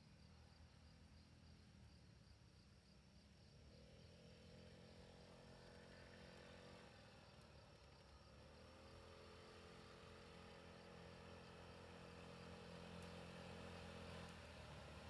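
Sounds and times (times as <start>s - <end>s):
crickets chirping: 0.0s - 15.0s
scooter engine approaching: 3.6s - 15.0s.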